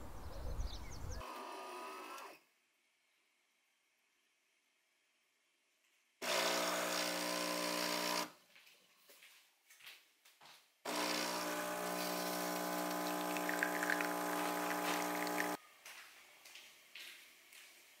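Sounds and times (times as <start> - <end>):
espresso machine buzz: 6.2 - 8.3, 10.9 - 15.6.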